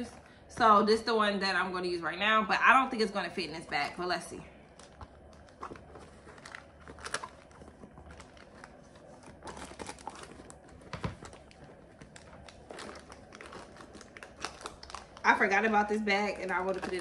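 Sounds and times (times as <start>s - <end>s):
crinkling and rustling: 3.5s - 17.0s.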